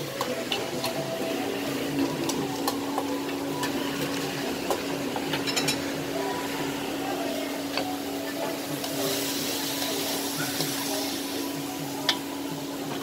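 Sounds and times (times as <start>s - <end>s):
meat frying in wok: 0.0s - 13.0s
metal spatulas clinking on woks: 5.3s - 5.8s.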